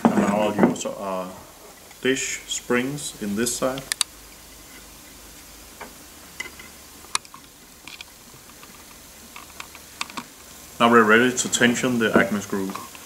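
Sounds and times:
low steady hum: 0.0s - 13.0s
small metal parts clicking: 6.4s - 10.3s.

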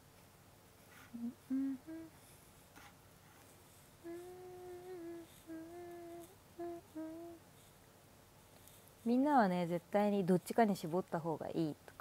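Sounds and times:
woman humming: 1.1s - 2.2s, 4.0s - 7.4s.

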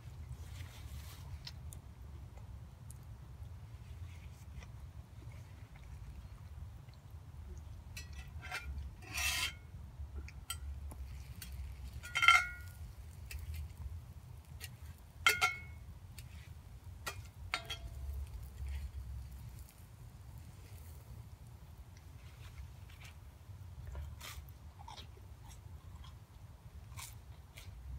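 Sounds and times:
metal spatula scraping skillet: 8.0s - 9.7s, 11.4s - 13.6s, 14.6s - 19.7s.

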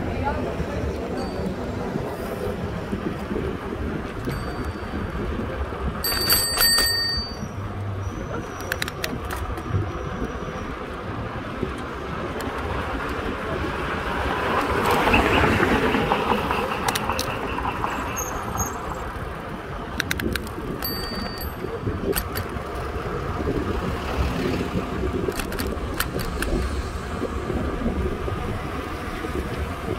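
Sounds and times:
road rumble: 0.0s - 29.9s
wind: 0.0s - 29.9s
rattling clicks: 6.0s - 7.4s, 16.7s - 17.4s, 19.9s - 22.8s, 25.3s - 26.8s.

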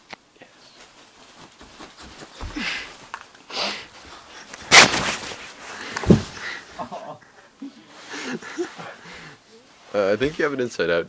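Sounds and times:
faint rustling and handling: 0.2s - 11.0s
breathy sniffs: 2.5s - 4.0s.

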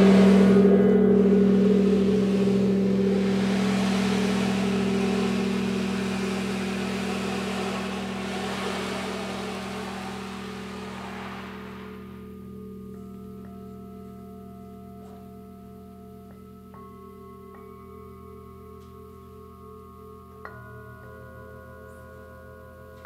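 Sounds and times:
gong ringing: 0.0s - 12.6s.

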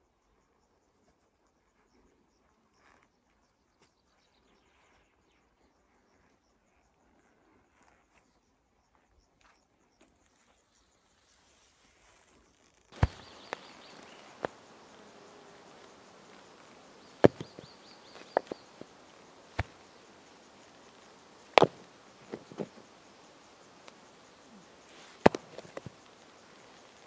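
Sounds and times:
rocks clacking together: 13.0s - 27.0s.

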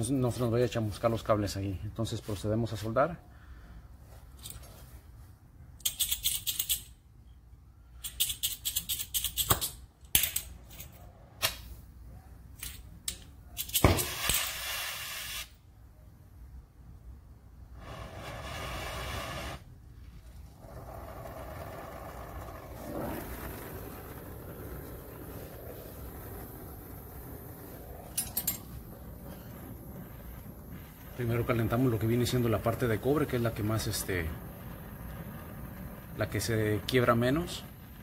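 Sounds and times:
sharp snap of torch igniting: 11.4s - 11.8s, 12.6s - 15.6s, 17.8s - 19.7s
torch flame hissing: 13.8s - 15.6s, 17.6s - 38.0s.

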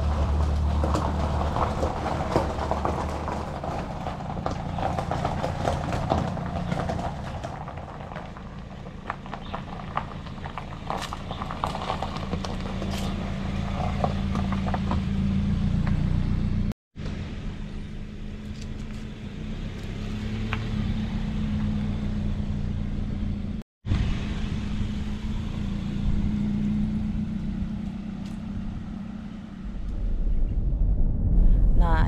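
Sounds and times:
tyres crunching on gravel: 0.0s - 16.6s
car engine hum: 0.0s - 32.0s.

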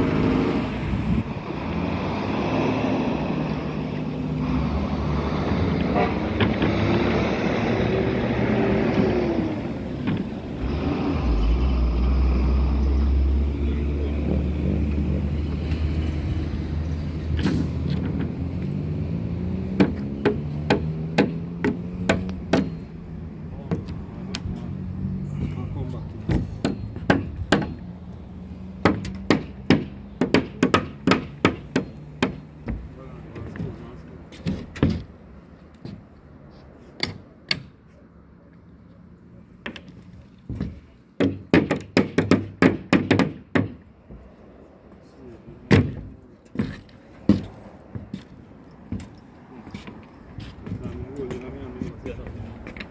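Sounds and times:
hammer striking plywood: 19.8s - 22.8s, 26.3s - 27.8s, 28.8s - 32.9s, 40.5s - 43.8s, 45.7s - 47.5s
hammer strikes ringing: 19.8s - 23.0s, 26.3s - 28.0s.

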